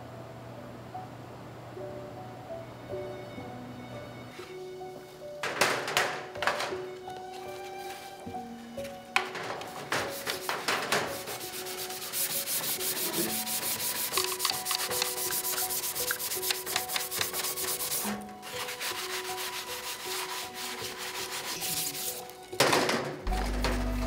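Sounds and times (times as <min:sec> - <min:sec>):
hand sanding plastic: 0:05.6 - 0:22.7.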